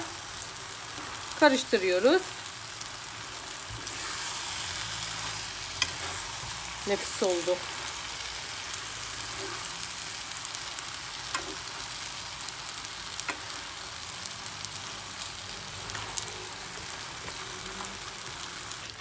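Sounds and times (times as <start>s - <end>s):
spaghetti sizzling in a pan: 0.0s - 19.0s.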